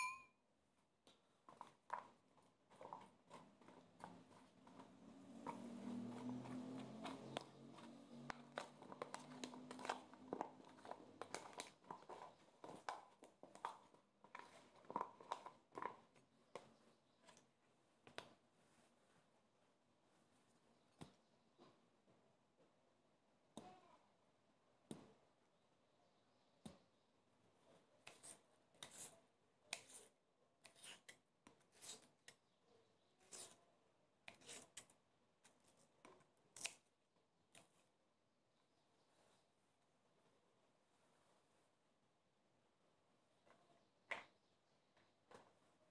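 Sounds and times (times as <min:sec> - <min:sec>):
wet stirring of rice: 0:01.0 - 0:18.5
knife slicing lettuce on cutting board: 0:28.0 - 0:32.1, 0:33.2 - 0:33.6, 0:34.3 - 0:34.9.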